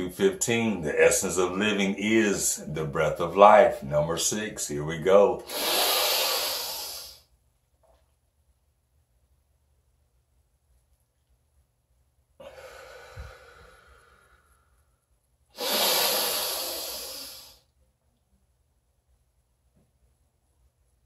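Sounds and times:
man breathing in deeply: 0:05.4 - 0:07.2, 0:12.4 - 0:14.8, 0:15.6 - 0:17.7
man breathing out forcefully: 0:05.4 - 0:07.2, 0:12.4 - 0:14.4, 0:15.6 - 0:17.7.

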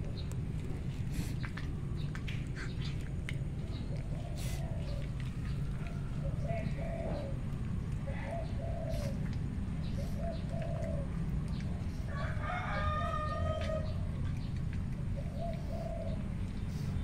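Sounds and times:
doves cooing: 0:00.0 - 0:17.0
rooster crowing: 0:12.1 - 0:14.0.

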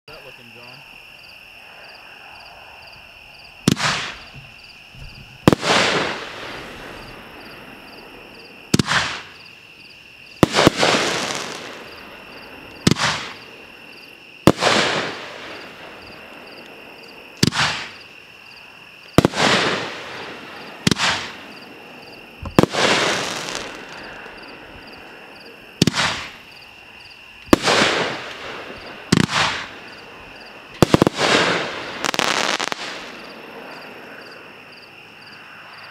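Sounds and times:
firework hissing tail: 0:03.6 - 0:08.1, 0:10.4 - 0:13.5, 0:19.2 - 0:21.7, 0:22.4 - 0:24.9, 0:27.5 - 0:33.4
firework bangs: 0:03.6 - 0:09.5, 0:10.4 - 0:13.6, 0:14.4 - 0:16.6, 0:17.4 - 0:18.1, 0:19.1 - 0:25.0, 0:25.8 - 0:26.6, 0:27.4 - 0:33.6.

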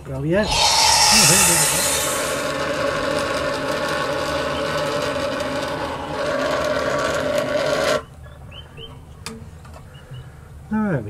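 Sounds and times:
steam wand hissing: 0:00.4 - 0:03.0.

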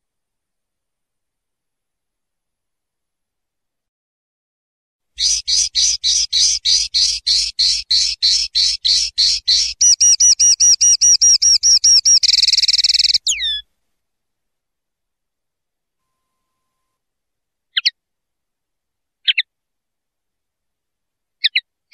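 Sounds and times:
linnet singing: 0:05.2 - 0:13.6, 0:17.7 - 0:18.0, 0:19.2 - 0:19.5, 0:21.4 - 0:21.7.

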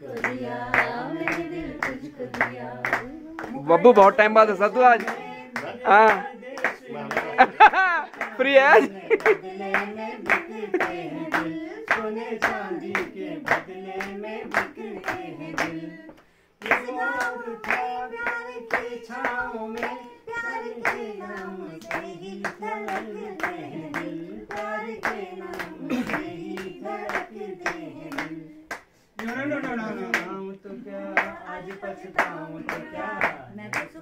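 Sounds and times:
group singing: 0:00.0 - 0:34.0
hands clapping in time: 0:04.9 - 0:20.0.

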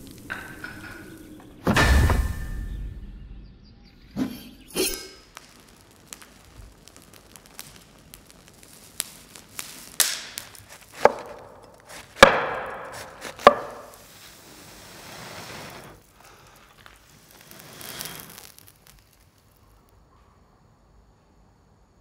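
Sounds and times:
blade chopping wood: 0:10.0 - 0:14.0.

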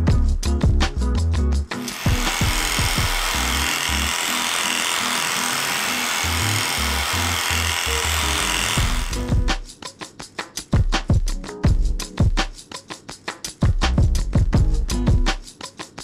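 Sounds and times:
background music: 0:00.0 - 0:16.0
electric clipper running: 0:01.8 - 0:09.5.

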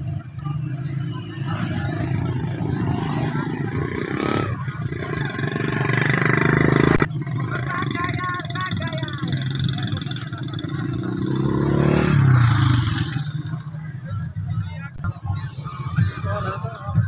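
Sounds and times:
crowd murmur: 0:00.0 - 0:17.0.

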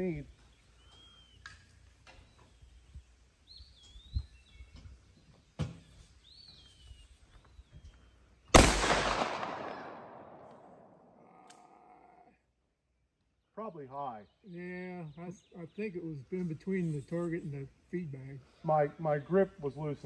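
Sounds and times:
birds chirping: 0:00.0 - 0:12.4, 0:13.2 - 0:20.0
revolver gunshot with echo: 0:08.5 - 0:11.0.

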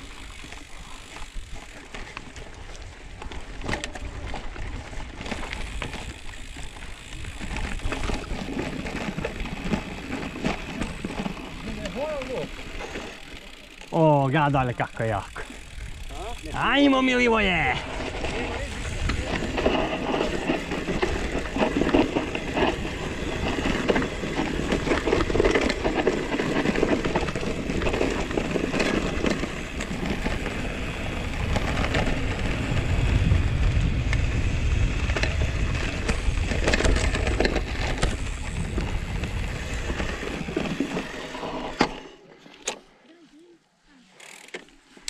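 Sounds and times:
bike clicks and rattles: 0:00.0 - 0:43.0, 0:44.0 - 0:45.0
wind buffeting microphone: 0:15.6 - 0:41.1.

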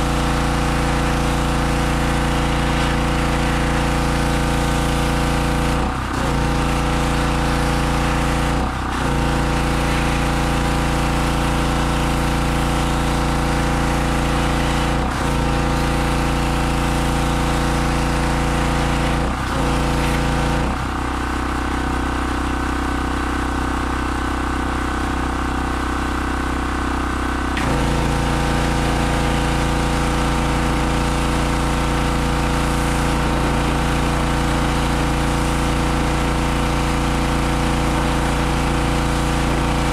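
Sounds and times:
pressure washer engine running: 0:00.0 - 0:39.9.

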